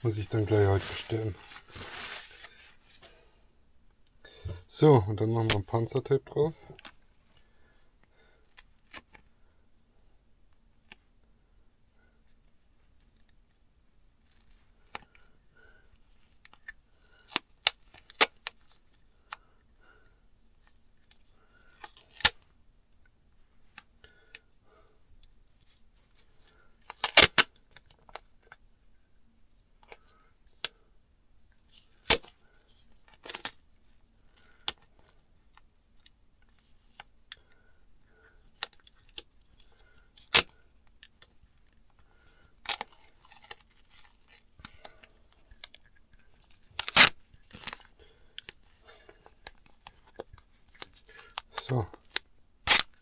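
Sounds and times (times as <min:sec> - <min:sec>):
duct tape ripping off roll: 0:00.8 - 0:02.7, 0:21.8 - 0:22.4, 0:26.9 - 0:27.6, 0:31.7 - 0:32.4, 0:33.1 - 0:33.6, 0:40.2 - 0:40.6, 0:42.6 - 0:44.9, 0:46.6 - 0:47.9, 0:50.8 - 0:53.0
tape handling clicks and rustles: 0:25.6 - 0:28.6, 0:38.4 - 0:53.0.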